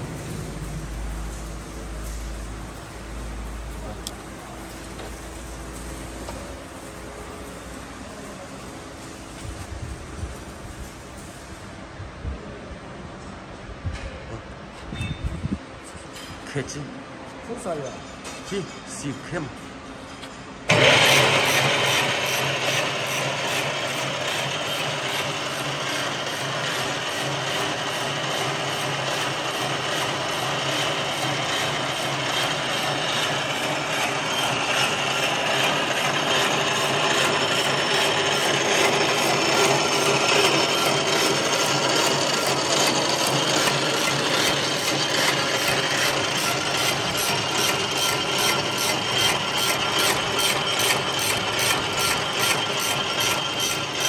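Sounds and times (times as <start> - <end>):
machine gears clattering: 20.7 - 54.0.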